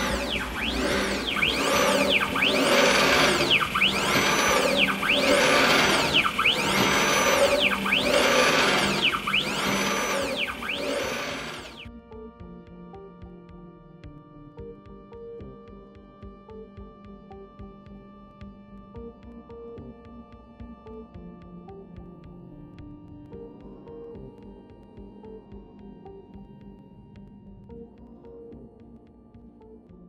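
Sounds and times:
stepper motor whine: 0:00.0 - 0:11.9
soft ambient music: 0:11.8 - 0:30.0.

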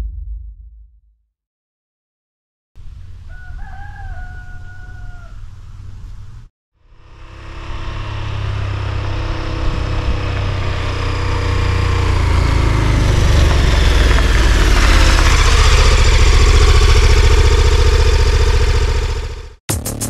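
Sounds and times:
motorcycle engine: 0:06.8 - 0:20.0.

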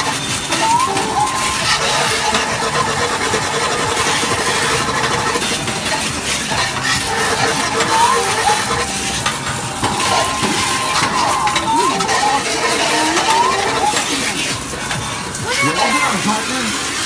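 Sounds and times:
faint electronic tones: 0:00.0 - 0:05.5, 0:07.0 - 0:14.6
arcade game machine noise: 0:00.0 - 0:17.0
short rising beeps: 0:00.5 - 0:02.6.

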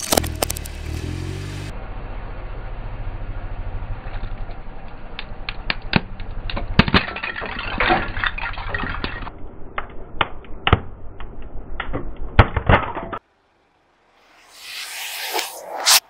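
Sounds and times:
plastic cracking under tyre: 0:00.0 - 0:00.7
car engine rumbling: 0:00.0 - 0:07.2.

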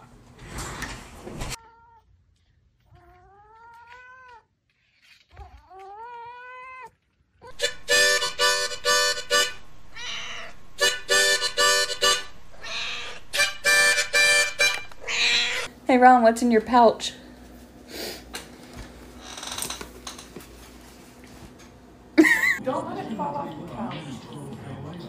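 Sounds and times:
harmonica chords: 0:07.5 - 0:15.6
cat meowing: 0:09.9 - 0:10.6, 0:12.5 - 0:13.4, 0:15.0 - 0:15.7.

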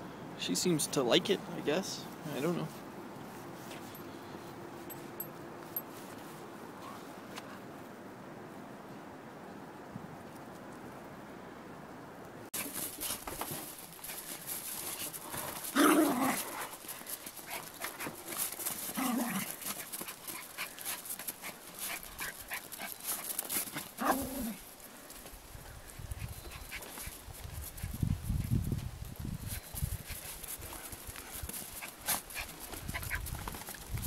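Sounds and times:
scuffling: 0:12.6 - 0:25.4, 0:26.2 - 0:34.0
small dogs barking: 0:23.7 - 0:24.6.

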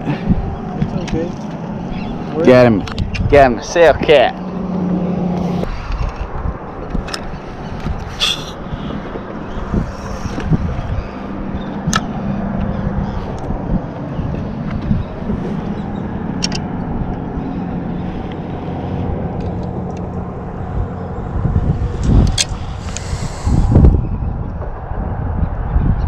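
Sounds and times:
low background rumble: 0:07.6 - 0:26.0.

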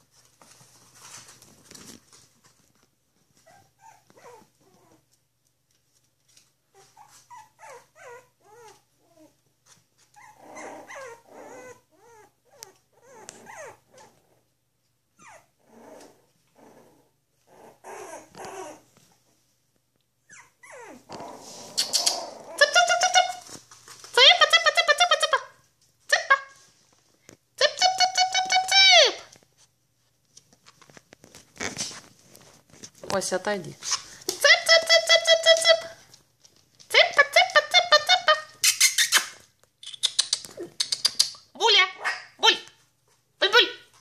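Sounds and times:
puppies growling and yipping: 0:03.4 - 0:05.1, 0:06.7 - 0:19.5, 0:20.2 - 0:22.8.

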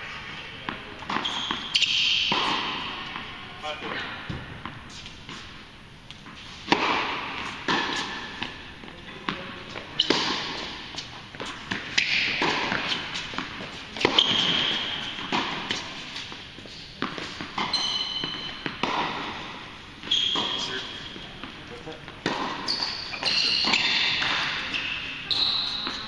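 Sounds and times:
tennis ball hit and bouncing: 0:00.6 - 0:03.3, 0:06.3 - 0:08.6, 0:09.2 - 0:16.4, 0:17.0 - 0:24.8.

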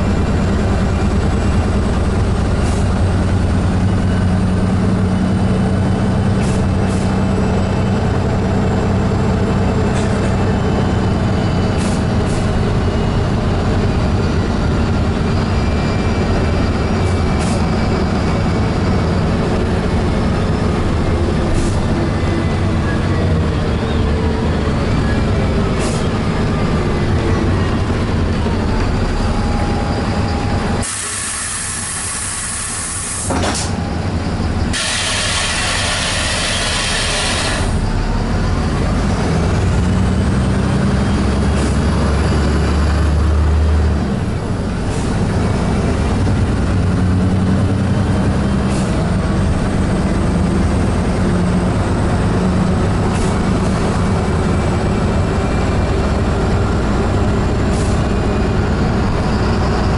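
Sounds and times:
bus engine and road rumble: 0:00.0 - 0:59.9
air hissing bursts: 0:30.8 - 0:33.7, 0:34.7 - 0:37.8.

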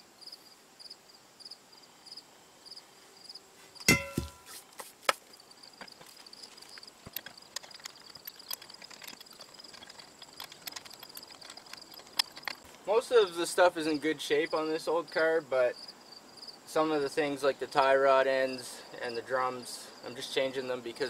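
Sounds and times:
crickets chirping: 0:00.0 - 0:21.0
heavy metal clang: 0:03.9 - 0:04.5.

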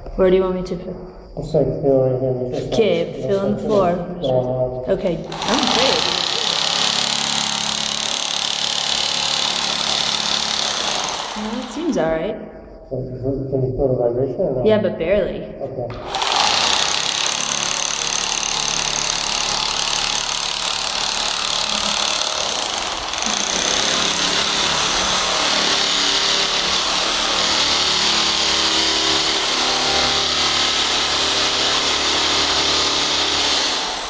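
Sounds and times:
drill scraping glue off concrete: 0:05.3 - 0:11.9, 0:15.9 - 0:34.0.

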